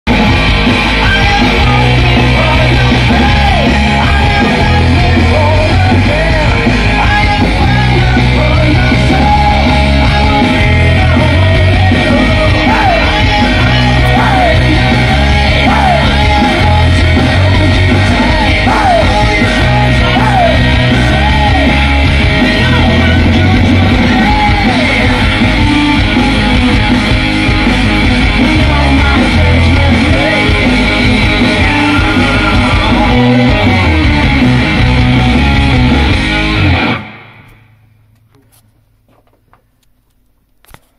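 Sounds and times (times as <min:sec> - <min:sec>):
loud rock music: 0:00.0 - 0:37.8
yelled vocals: 0:00.1 - 0:37.5
bass guitar riff: 0:00.1 - 0:38.4.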